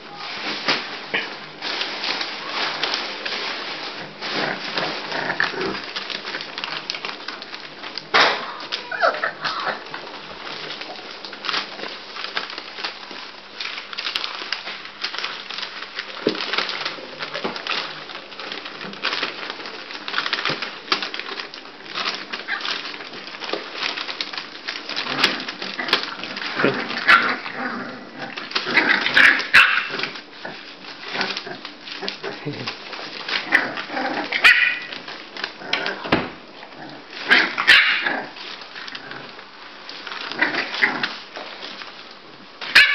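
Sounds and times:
paws scratching on newspaper: 0.1s - 42.9s
puppies whimpering and squealing: 8.7s - 9.9s.

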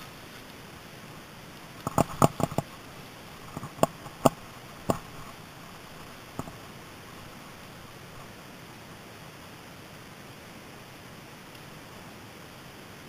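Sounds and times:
steady hiss: 0.0s - 13.0s
sharp clicks and knocks: 1.8s - 2.8s, 3.5s - 5.4s, 6.3s - 6.6s.

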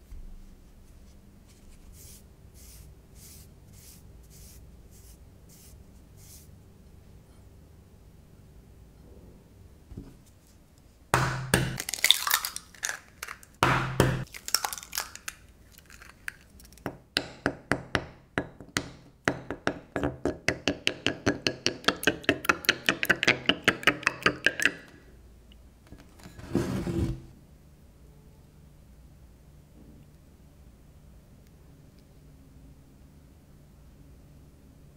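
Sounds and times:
eggs cracking into a bowl: 11.2s - 17.4s, 18.4s - 25.0s
wooden spoon clacking against bowl: 17.2s - 25.0s.

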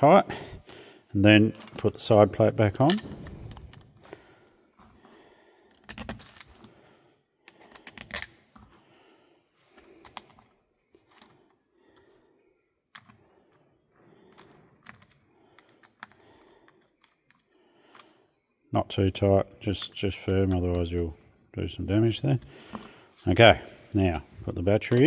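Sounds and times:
clicks and taps of small parts: 12.9s - 13.2s, 14.3s - 18.1s.

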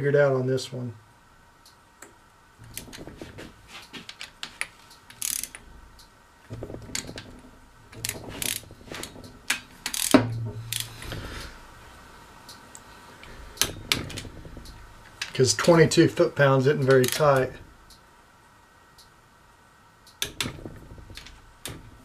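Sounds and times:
ratchet wrench clicking: 5.1s - 5.6s, 8.0s - 8.7s, 9.5s - 10.9s, 16.9s - 17.5s.

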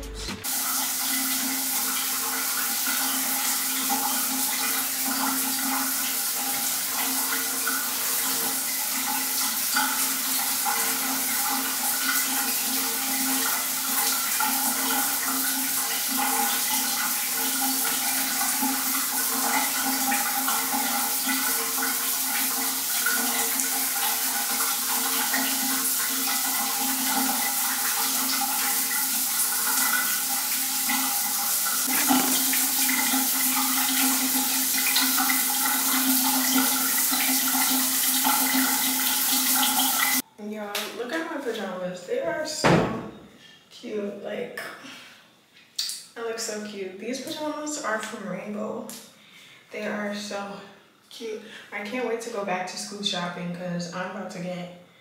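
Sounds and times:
water running: 0.0s - 43.1s.

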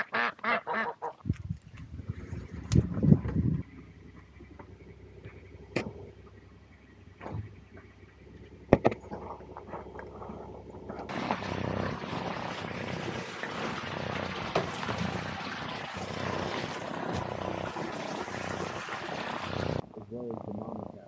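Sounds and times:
sharp knocks: 8.7s - 9.8s.

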